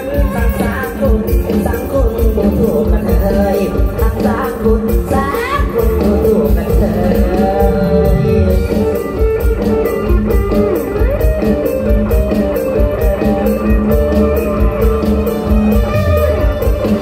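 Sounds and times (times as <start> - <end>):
bass: 0.0 - 17.0
steady drum beat: 0.0 - 17.0
plucked-string lead melody: 5.6 - 17.0.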